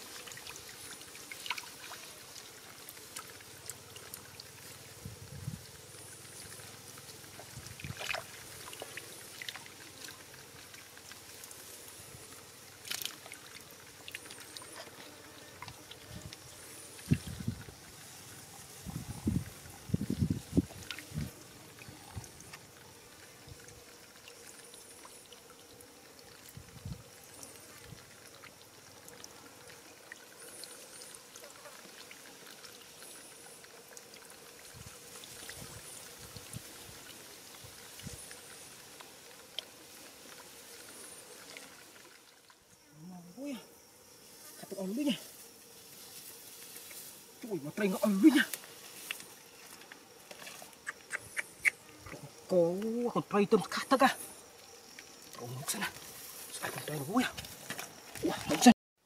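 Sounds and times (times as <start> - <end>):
fish splashing and flapping: 0.0 - 4.8, 6.2 - 11.6
faint water trickle: 0.0 - 50.9, 51.8 - 58.7.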